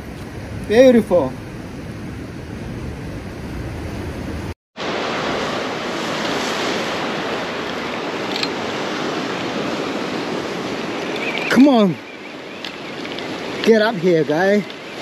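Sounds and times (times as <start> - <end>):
wind on microphone: 0.0 - 15.0
ocean surf washing on rocks: 4.8 - 15.0.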